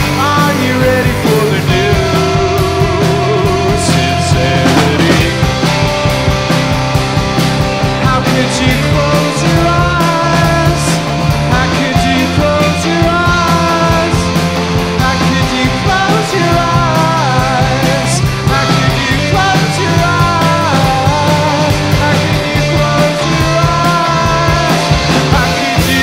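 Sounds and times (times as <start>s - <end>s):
electric guitar bending notes: 0.0s - 26.0s
rock band playing: 0.0s - 26.0s.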